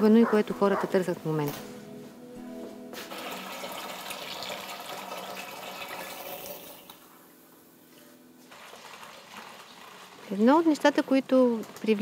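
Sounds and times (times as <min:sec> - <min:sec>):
soft music: 0:00.0 - 0:08.5
milk pouring splashing: 0:03.1 - 0:07.0, 0:08.5 - 0:10.7.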